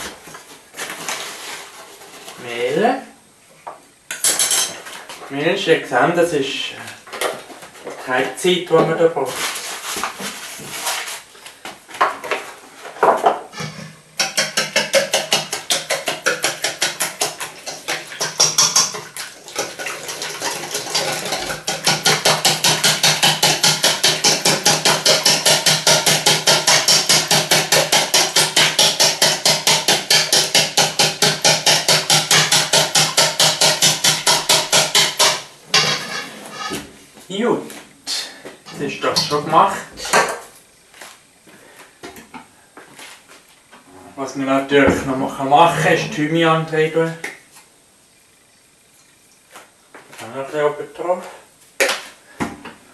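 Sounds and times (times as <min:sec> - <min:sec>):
whisk beating in metal bowl: 0:13.6 - 0:36.0.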